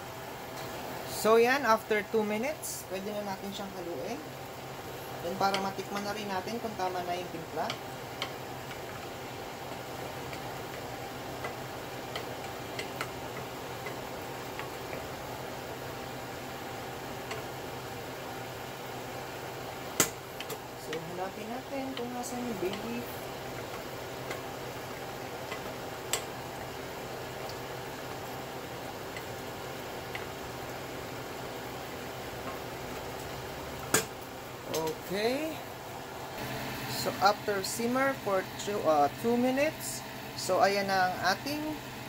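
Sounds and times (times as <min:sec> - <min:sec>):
steady low hum: 0:00.0 - 0:42.0
wooden spatula stirring in pot: 0:05.1 - 0:34.0
spatula clicking against a pot: 0:25.5 - 0:26.3.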